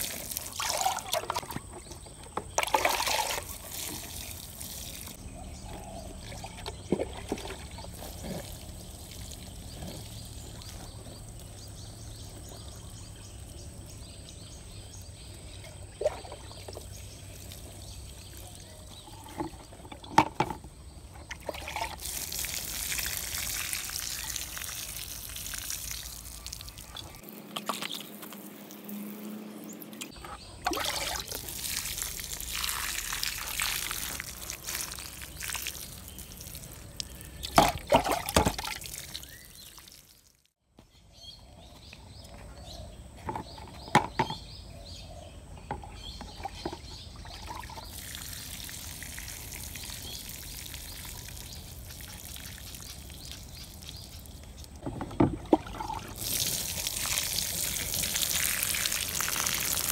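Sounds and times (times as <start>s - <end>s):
water showering onto plants: 0.0s - 1.2s, 2.8s - 5.2s, 7.8s - 11.5s, 16.8s - 18.8s, 21.6s - 29.8s, 30.7s - 40.5s, 47.8s - 54.8s, 56.1s - 59.9s.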